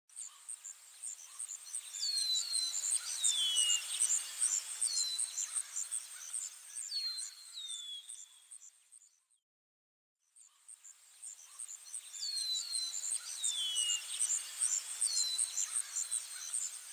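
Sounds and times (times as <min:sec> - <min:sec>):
insects chirping: 0:10.7 - 0:16.9
soft hiss: 0:10.7 - 0:16.9.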